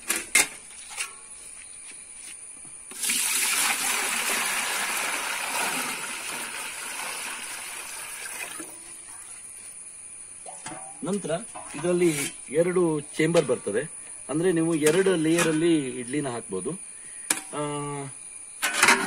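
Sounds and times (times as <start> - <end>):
water pouring into metal pot: 2.9 - 9.0.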